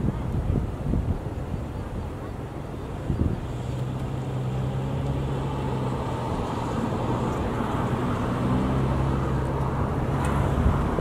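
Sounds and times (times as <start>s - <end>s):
engine humming: 2.2s - 11.0s.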